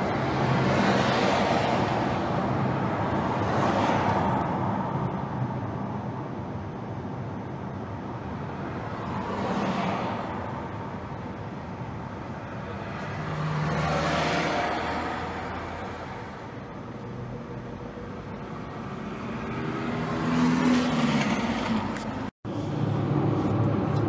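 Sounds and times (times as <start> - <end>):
road noise: 0.0 - 24.0.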